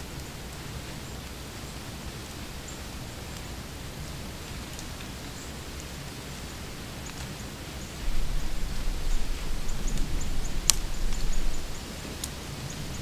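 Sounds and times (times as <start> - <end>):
low rumble on microphone: 7.9 - 13.0.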